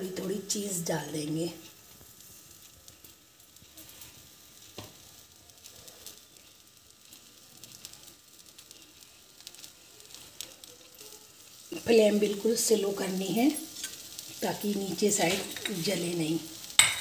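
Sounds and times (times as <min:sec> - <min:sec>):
butter sizzling in a pan: 0:00.0 - 0:17.0
small taps of sprinkled cheese: 0:04.7 - 0:05.0.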